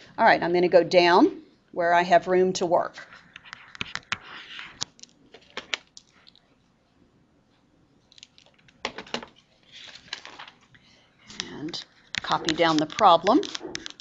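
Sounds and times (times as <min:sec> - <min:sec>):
stylus tapping and scratching on screen: 0:03.0 - 0:06.5, 0:08.1 - 0:14.0.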